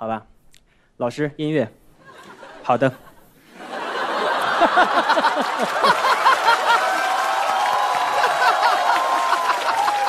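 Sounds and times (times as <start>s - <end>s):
audience laughing: 2.0s - 7.2s, 7.9s - 10.0s.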